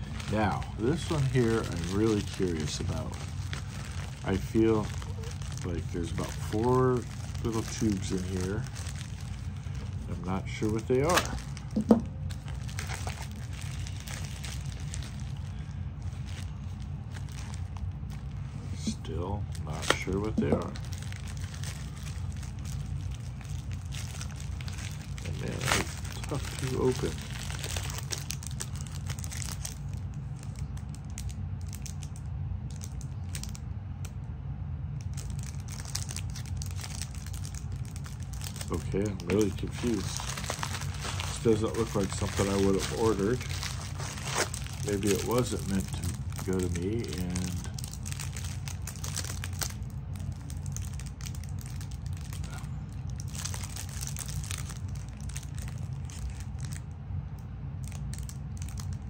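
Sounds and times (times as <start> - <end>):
packaging crinkling: 0.0 - 34.2, 34.9 - 59.0
steady low hum: 0.0 - 59.0.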